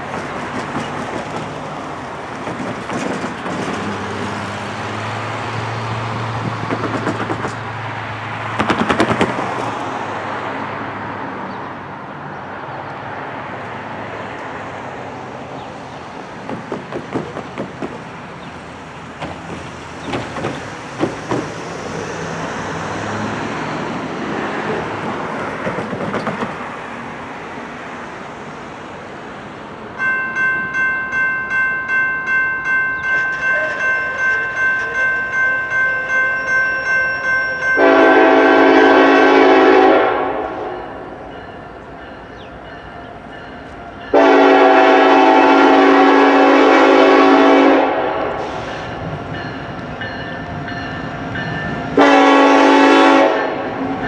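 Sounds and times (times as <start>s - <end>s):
cars passing: 0.0s - 54.0s
crossing warning bell ringing: 30.0s - 54.0s.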